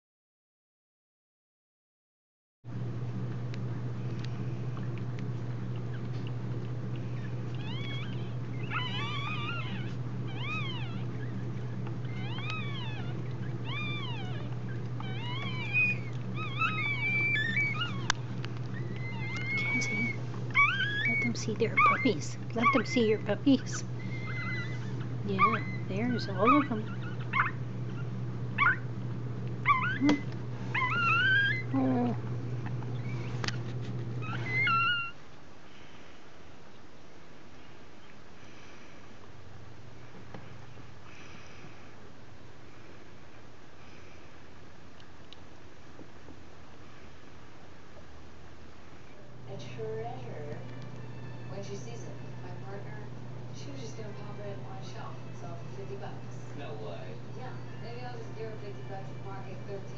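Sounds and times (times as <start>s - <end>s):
steady low hum: 2.7s - 59.9s
puppies squealing: 7.1s - 28.9s, 29.6s - 32.2s, 32.9s - 33.6s, 34.2s - 35.2s.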